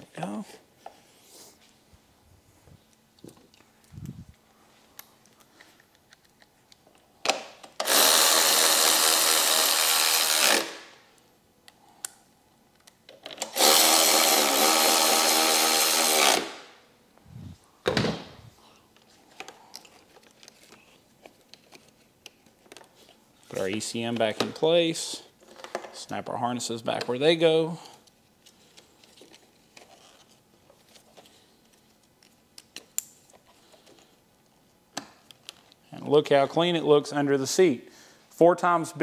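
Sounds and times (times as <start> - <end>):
power driver running: 7.8 - 10.8, 13.5 - 16.6.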